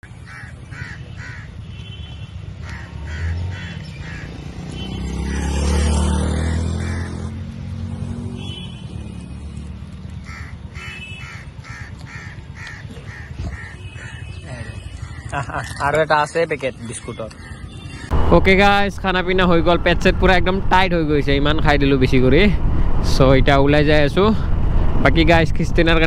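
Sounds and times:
crows cawing: 0.0s - 1.8s, 2.5s - 7.6s, 10.0s - 18.1s.

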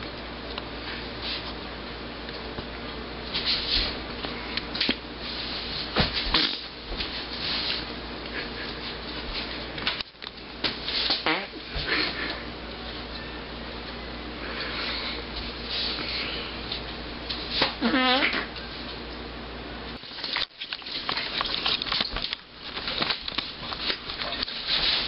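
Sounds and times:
room hum: 0.0s - 25.0s
rustling and handling noises: 20.0s - 25.0s.

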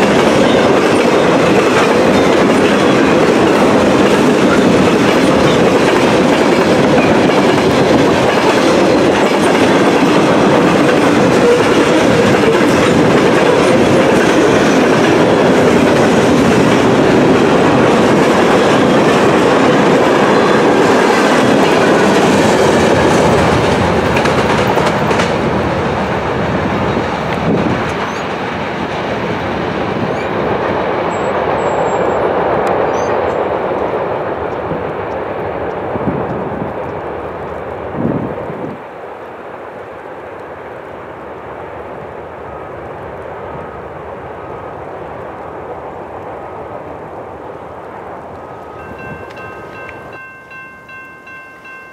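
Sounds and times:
wheels clacking over rail joints: 0.0s - 33.3s
freight train rumbling past: 0.0s - 51.9s.

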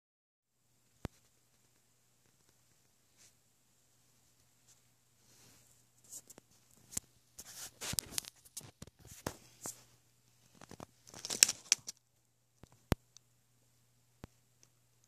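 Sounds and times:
faint low hum: 0.5s - 15.0s.

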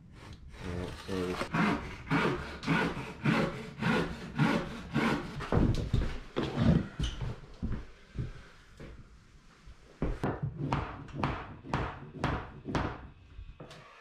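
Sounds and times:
handsaw cutting wood: 0.2s - 5.7s.

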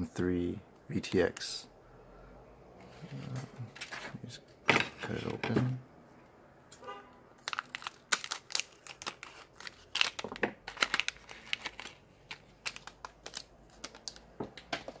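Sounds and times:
plastic bag crinkling: 7.4s - 14.4s.

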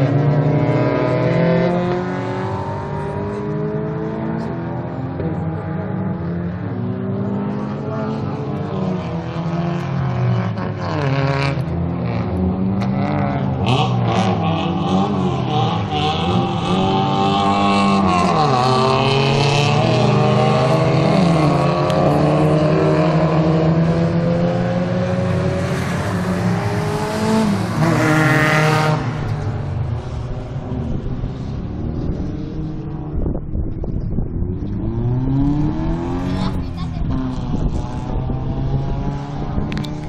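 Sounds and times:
racing car engines at high revs: 0.0s - 40.0s.

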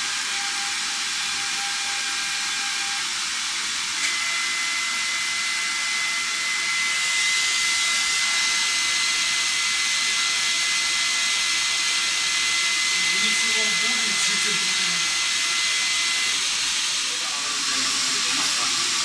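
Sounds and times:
steady high whine: 0.0s - 19.0s
pretreatment head hissing: 12.9s - 19.0s.

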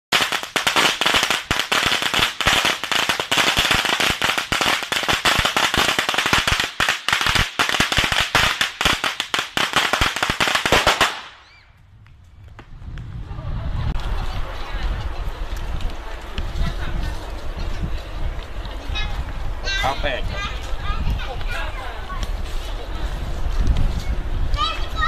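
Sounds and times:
firecrackers crackling: 0.1s - 19.7s.

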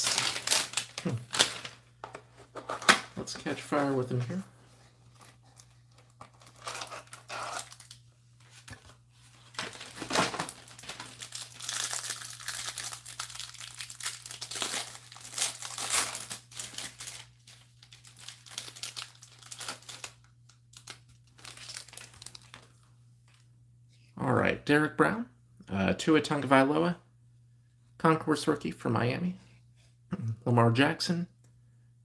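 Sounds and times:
plastic wrapper crinkling: 0.0s - 1.9s, 5.1s - 23.4s.

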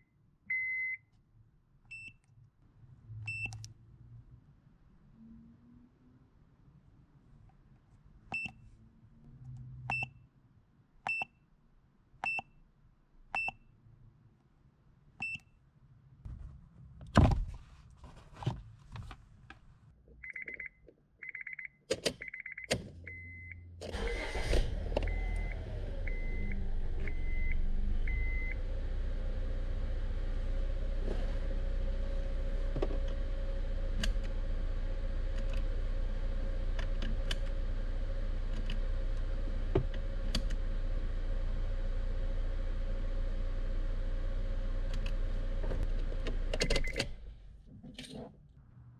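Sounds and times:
car warning chime beeps: 0.5s - 1.1s, 20.2s - 24.4s, 25.1s - 28.6s
car engine starting and idling: 22.7s - 47.7s.

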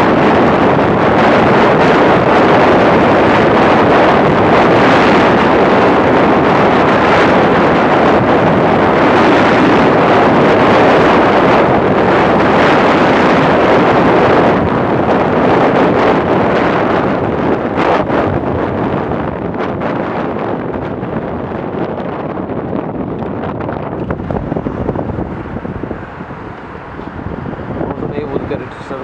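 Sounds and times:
wind buffeting microphone: 0.0s - 29.0s.

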